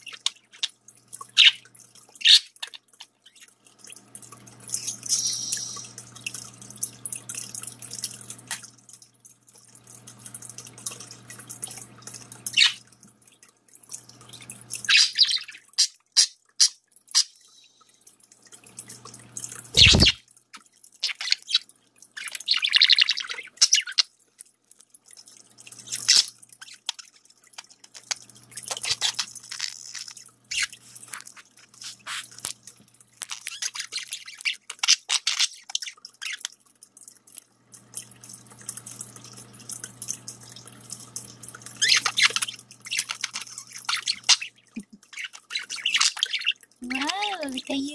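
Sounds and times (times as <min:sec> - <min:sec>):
fountain trickling: 0:00.0 - 0:47.9.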